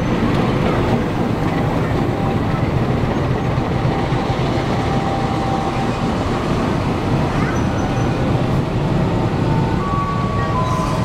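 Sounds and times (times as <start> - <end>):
railway coaches rumbling past: 0.0 - 11.0.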